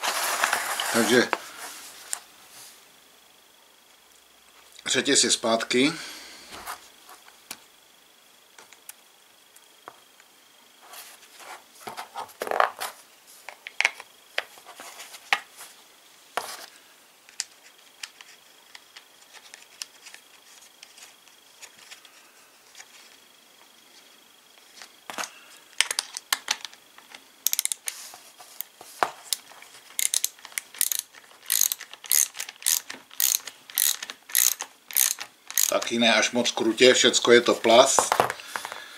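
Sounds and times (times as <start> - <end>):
ratchet wrench clicking: 27.4 - 27.9, 30.0 - 35.9
saw chain and plastic parts rattling: 29.9 - 36.0.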